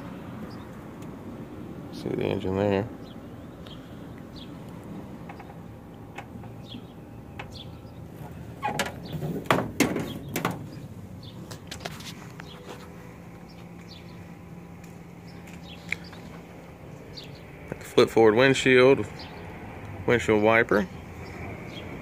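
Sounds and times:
outdoor background noise: 0.0s - 22.0s
car body knocks and rattles: 8.2s - 10.8s.

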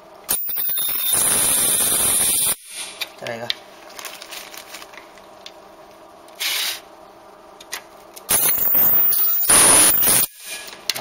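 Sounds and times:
thin high steady whine: 0.0s - 11.0s.

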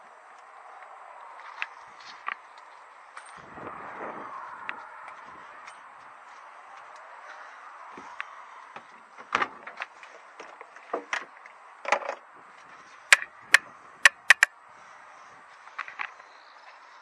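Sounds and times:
loud sharp clicks: 13.1s - 14.5s
sharp clicks and knocks: 13.1s - 14.5s.

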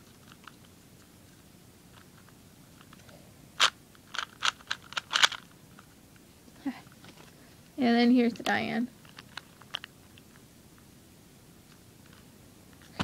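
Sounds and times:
puzzle cube pieces clicking: 3.6s - 5.5s.

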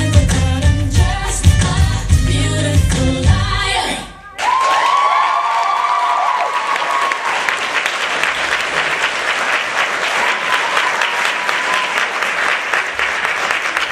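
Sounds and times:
audience applauding: 4.4s - 13.9s.

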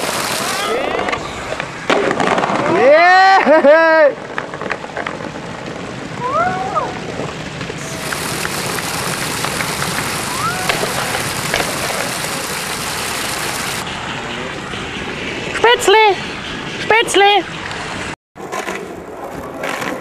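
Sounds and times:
skateboard clacks: 0.0s - 3.5s, 7.7s - 13.8s, 18.4s - 20.0s
skateboard wheels rolling on pavement: 0.0s - 13.8s, 17.2s - 20.0s
person shouting: 10.3s - 11.0s.

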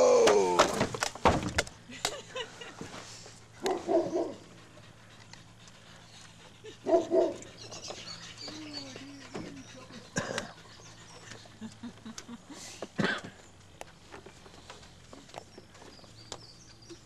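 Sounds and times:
dog barking: 3.6s - 4.4s, 6.8s - 7.4s.

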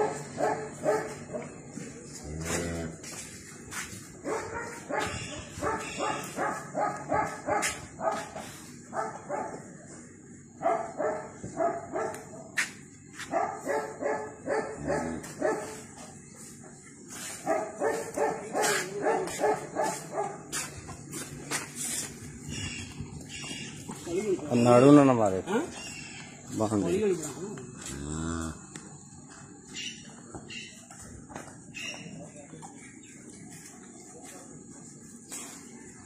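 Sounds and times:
dog barking: 0.0s - 1.5s, 4.2s - 9.7s, 10.6s - 12.5s, 13.2s - 15.8s, 17.4s - 20.7s.

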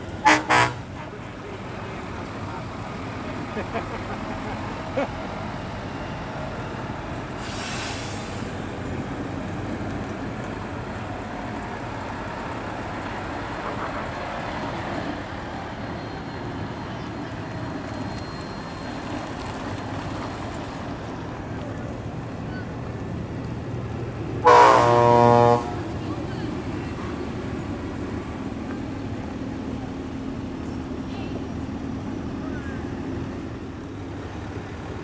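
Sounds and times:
heavy truck engines running: 0.0s - 35.0s
air brake hiss: 7.4s - 8.6s.

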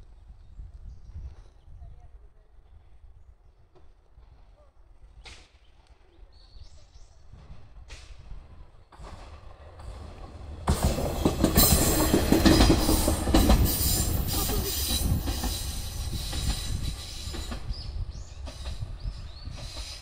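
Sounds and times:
train wheels clattering over rail joints: 7.5s - 20.0s.

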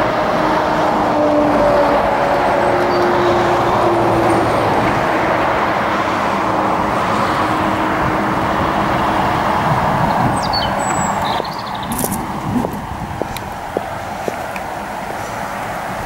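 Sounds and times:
road traffic passing: 0.0s - 16.0s
bird chirps: 10.4s - 12.2s.

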